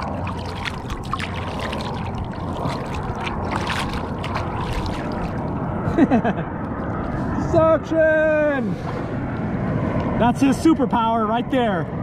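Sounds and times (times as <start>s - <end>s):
waves splashing against kayak hull: 0.0s - 5.9s.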